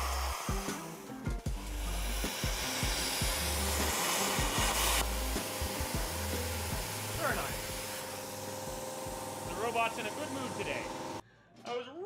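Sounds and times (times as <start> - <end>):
music with deep bass: 0.0 - 7.9
plasma cutter hissing: 0.0 - 11.2.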